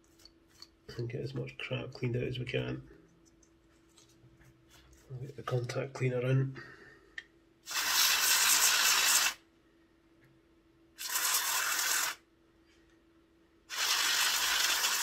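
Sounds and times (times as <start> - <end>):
aerosol spray hissing: 7.7 - 9.4, 11.0 - 12.2, 13.7 - 15.0.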